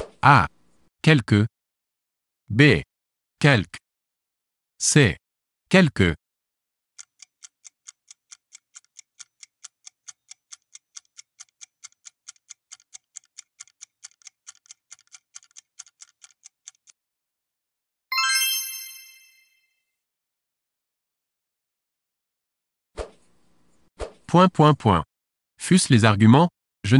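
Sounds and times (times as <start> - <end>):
fast even ticking timer: 7.0 - 17.0
bright chime: 18.1 - 19.7.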